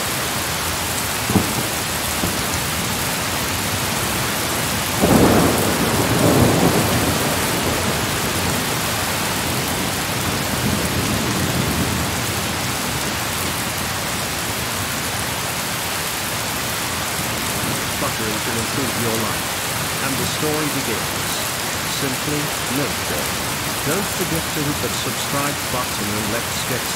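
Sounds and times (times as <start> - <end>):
steady rain: 0.0 - 26.9
thunder rumbling: 1.3 - 8.8.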